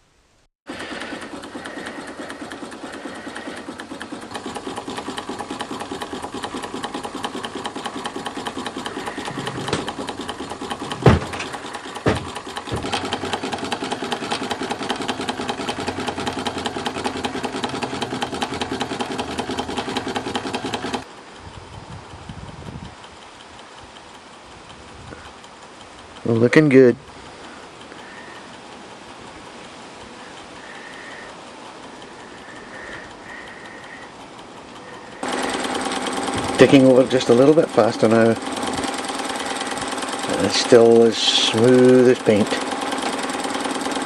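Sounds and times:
toy steam engine ticking over: 0.7 - 44.0
sharp thumps: 5.9 - 15.1.

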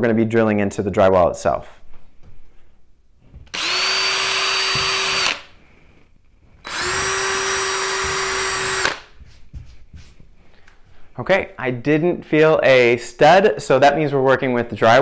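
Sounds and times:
cordless drill drilling into drywall: 3.5 - 5.6, 6.6 - 9.2.

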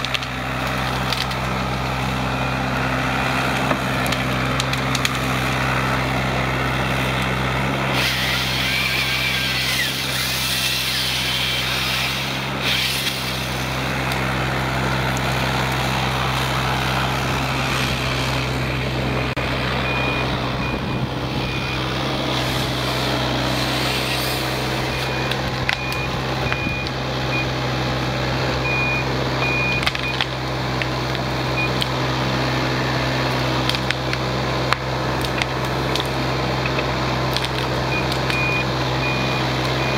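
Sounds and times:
branches cracking and rustling: 0.0 - 1.9, 3.1 - 5.8, 33.3 - 38.4
excavator diesel engine running: 0.0 - 39.9
high beeping: 19.8 - 22.0.

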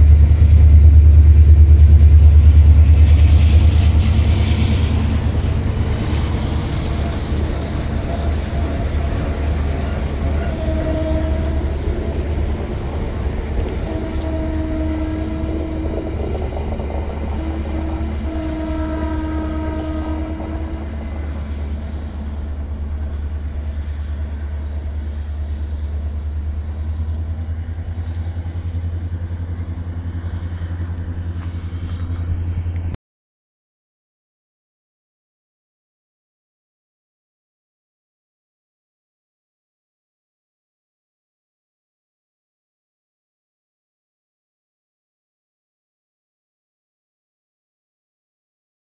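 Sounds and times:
steady low rumble: 0.0 - 5.9, 11.3 - 18.8, 19.7 - 33.0
electric locomotive horn: 0.8 - 32.9.

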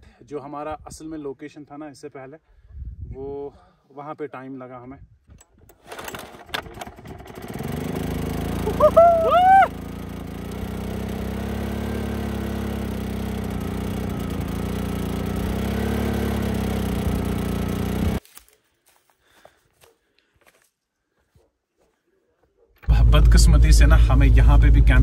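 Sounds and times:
generator starter clicks: 5.4 - 8.6
generator engine humming: 5.4 - 18.2, 22.8 - 25.0.

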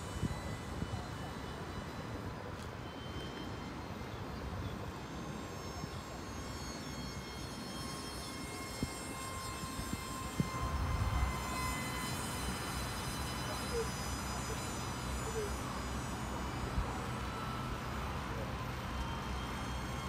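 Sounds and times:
jet turbine engine whining: 0.0 - 20.0
wind rumble on microphone: 8.6 - 12.1.

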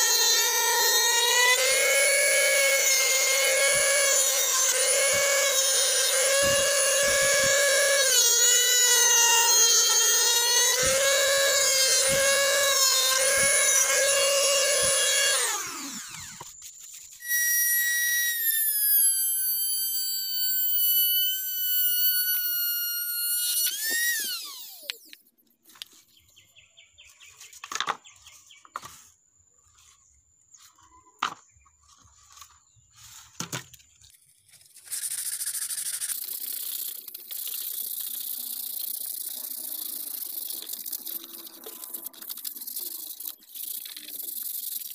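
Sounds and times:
sandpaper rubbing on pipe: 0.0 - 24.1, 34.3 - 44.9
rotary tool whining: 0.0 - 26.0, 30.6 - 44.9.

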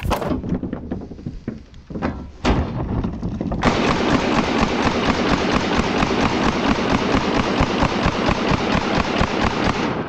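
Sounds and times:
knocks and thud: 0.0 - 4.0
submachine gun automatic fire: 3.6 - 10.0.

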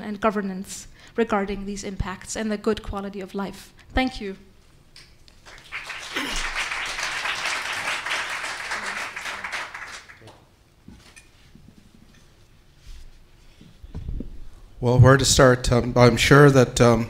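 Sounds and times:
audience applause: 5.4 - 10.4.

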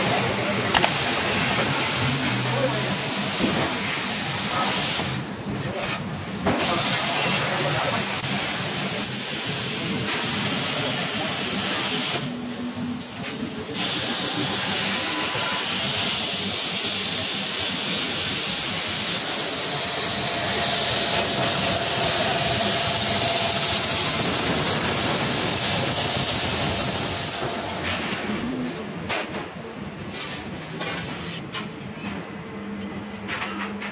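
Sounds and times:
plasma cutting torch hissing: 13.1 - 27.4.

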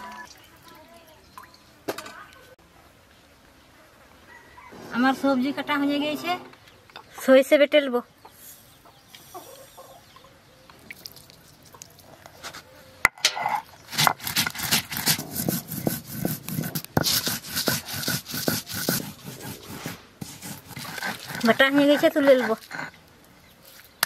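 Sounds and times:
stone roller scraping on stone: 12.5 - 23.0.

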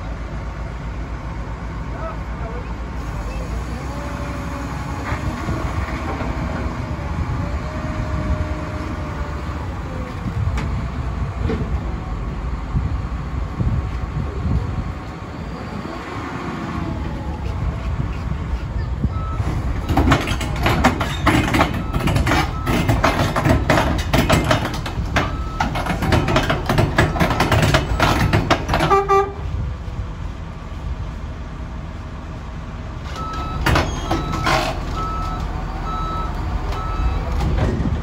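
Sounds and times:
diesel engine rumble: 0.0 - 38.0
steel tracks clanking: 19.4 - 29.6
loud knocks: 19.9 - 29.1
reversing alarm beeping: 25.2 - 25.8, 33.2 - 37.4.

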